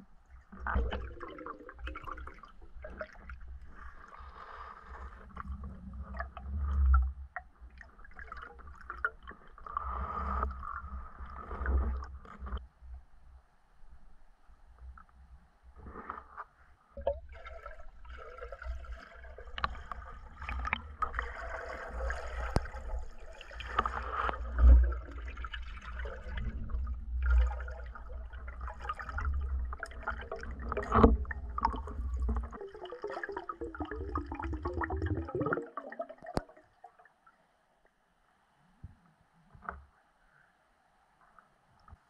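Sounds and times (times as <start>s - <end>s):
underwater rushing and gurgling: 17.0s - 36.6s.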